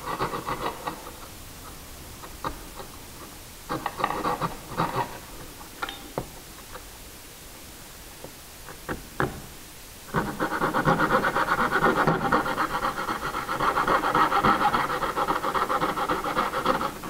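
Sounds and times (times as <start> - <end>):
hand saw rasping through wood: 0.0 - 1.2, 3.7 - 5.2, 10.1 - 17.0.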